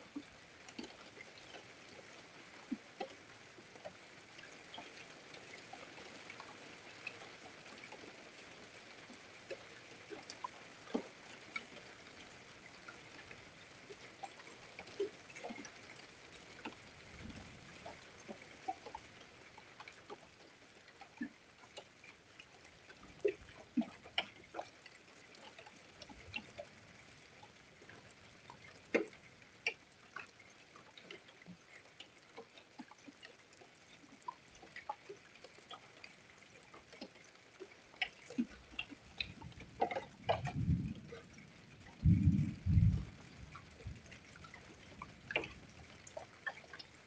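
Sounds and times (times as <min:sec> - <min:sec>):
raindrops ticking on hard surfaces: 0:00.0 - 0:47.0
low thunder rumble: 0:40.4 - 0:41.0, 0:41.9 - 0:44.1.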